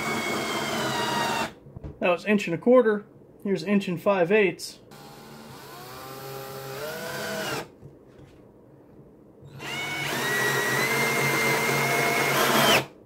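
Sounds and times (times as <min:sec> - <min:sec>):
cordless drill motor whine: 0:00.0 - 0:01.5, 0:04.9 - 0:07.7, 0:09.5 - 0:12.9.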